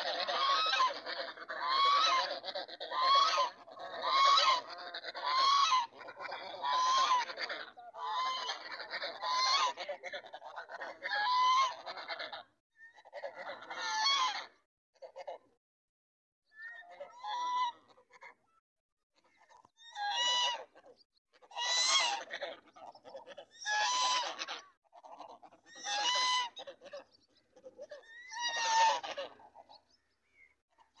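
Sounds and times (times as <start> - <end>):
geese honking: 0.0 - 12.4, 20.0 - 20.8, 21.4 - 29.9.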